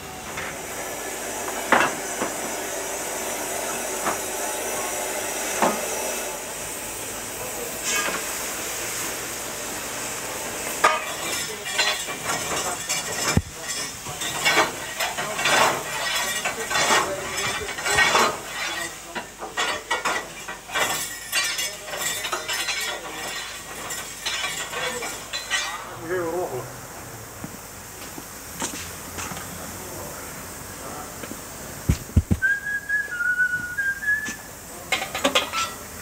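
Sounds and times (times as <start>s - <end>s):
steady hiss: 0.0s - 36.0s
fire irons scraping a grate: 7.6s - 9.1s, 10.6s - 26.6s, 33.8s - 36.0s.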